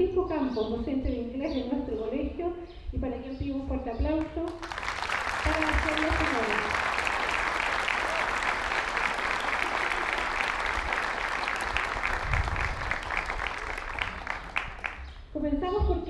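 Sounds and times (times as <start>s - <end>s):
audience applause: 4.6s - 15.1s.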